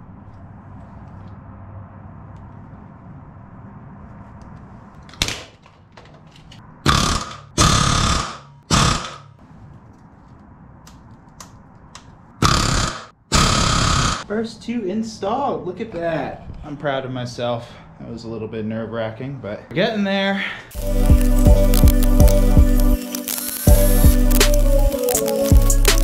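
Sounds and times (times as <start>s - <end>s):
pneumatic rivet gun hammering: 6.9s - 9.3s, 12.4s - 14.2s.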